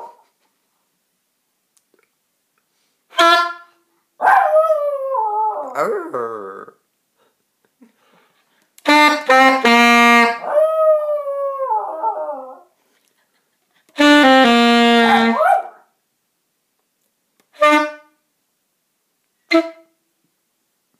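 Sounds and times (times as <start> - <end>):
saxophone playing: 3.1 - 3.8, 8.8 - 10.9, 13.9 - 15.4, 17.5 - 18.1
dog howling: 4.3 - 6.0, 10.4 - 12.7.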